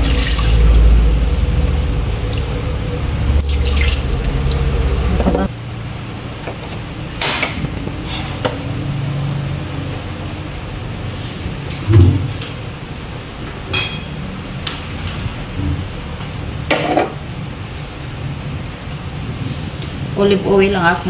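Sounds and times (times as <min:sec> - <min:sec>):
water dripping: 0:00.0 - 0:01.0, 0:03.4 - 0:05.0
water running from a tap: 0:00.0 - 0:01.0, 0:03.4 - 0:04.7.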